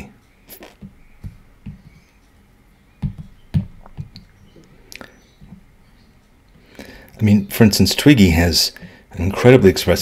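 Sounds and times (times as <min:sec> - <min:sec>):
soft taps and knocks: 0:00.8 - 0:02.1, 0:03.0 - 0:04.7.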